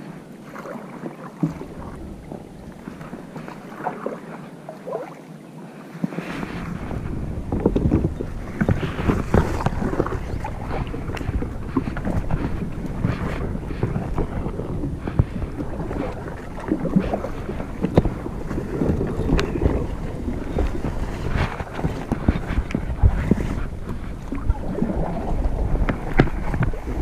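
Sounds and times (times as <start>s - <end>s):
paddle splashes: 0.0s - 27.0s
wind buffeting microphone: 6.1s - 27.0s
paddle knocks: 6.8s - 27.0s.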